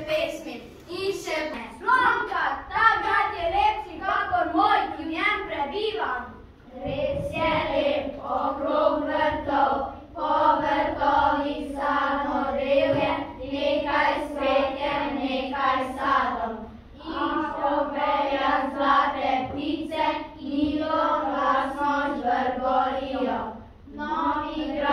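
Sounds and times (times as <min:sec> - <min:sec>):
children singing: 0:06.7 - 0:24.9.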